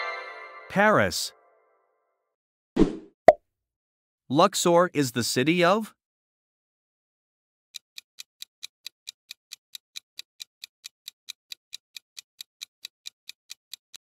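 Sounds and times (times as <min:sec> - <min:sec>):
timer ticking: 0:07.8 - 0:14.0.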